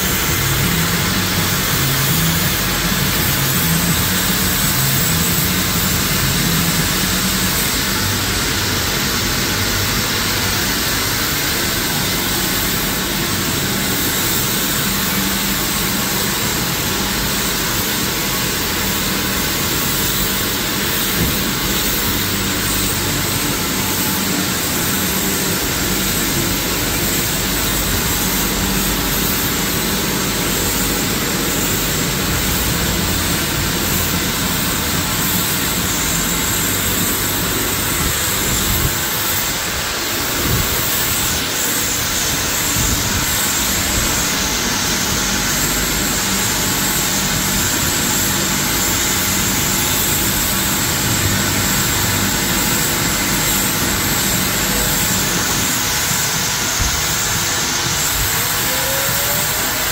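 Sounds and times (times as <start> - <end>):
pressure washer spray hissing: 0.0 - 59.9.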